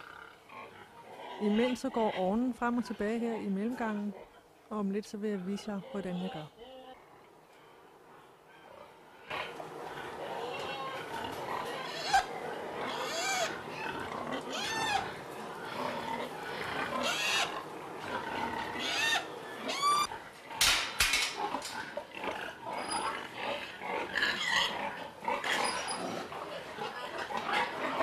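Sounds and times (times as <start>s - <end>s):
pigs high calls: 0.0s - 4.5s, 5.2s - 28.0s
pigs grunting: 0.0s - 4.6s, 5.2s - 20.6s, 21.3s - 28.0s.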